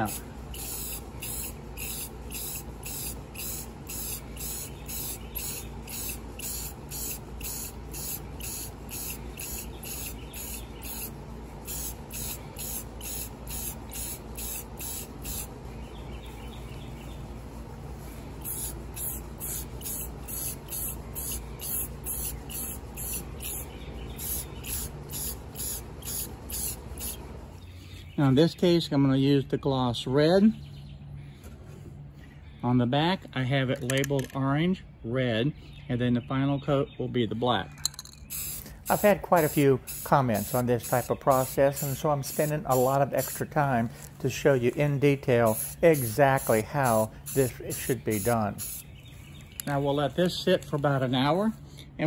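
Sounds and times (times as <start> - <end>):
spray can hissing in pulses: 0.0 - 15.5, 18.4 - 27.2, 38.3 - 44.1, 44.8 - 48.9.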